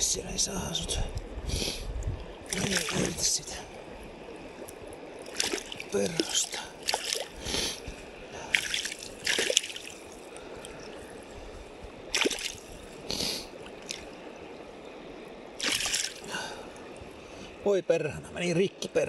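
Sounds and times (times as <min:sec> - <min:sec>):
stream water running: 0:00.0 - 0:19.0
water splashing in landing net: 0:02.5 - 0:03.5, 0:05.2 - 0:07.4, 0:08.5 - 0:11.0, 0:12.1 - 0:13.0, 0:13.6 - 0:14.1, 0:15.6 - 0:16.4.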